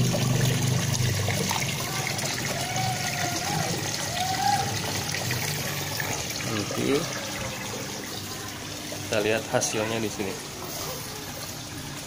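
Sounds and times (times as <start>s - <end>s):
water splashing into pond: 0.0s - 9.2s.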